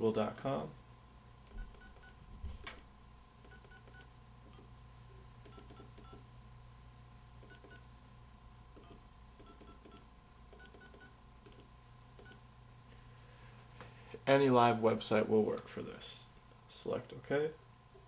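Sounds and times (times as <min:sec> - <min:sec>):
phone keypad beeps: 0:01.6 - 0:02.2, 0:03.5 - 0:04.7, 0:05.5 - 0:06.2, 0:07.4 - 0:07.8, 0:08.8 - 0:11.6.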